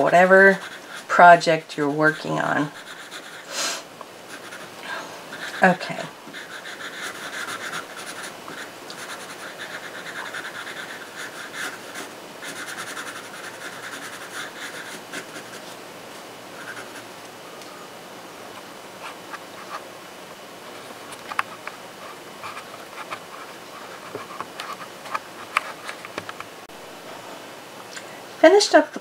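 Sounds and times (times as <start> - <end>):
pencil scratching on paper: 0.0 - 1.2, 2.0 - 3.5, 4.3 - 15.8, 16.6 - 17.1.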